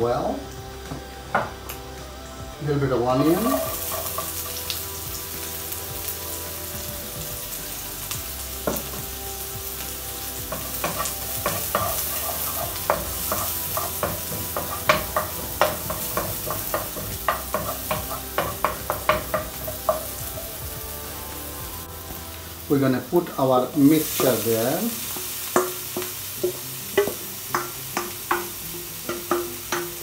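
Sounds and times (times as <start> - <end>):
onion sizzling in hot oil: 2.5 - 30.0
wooden spoon knocking against pan: 10.5 - 20.1.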